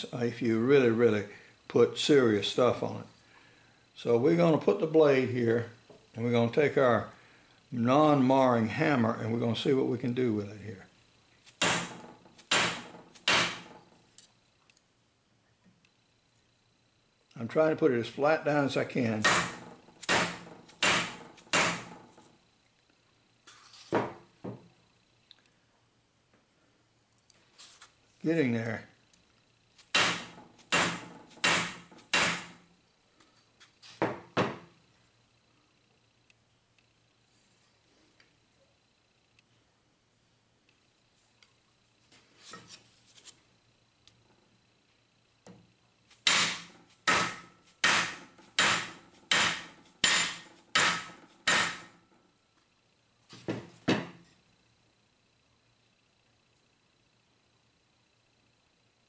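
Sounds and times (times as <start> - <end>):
hammer striking steel blade: 46.3 - 51.8.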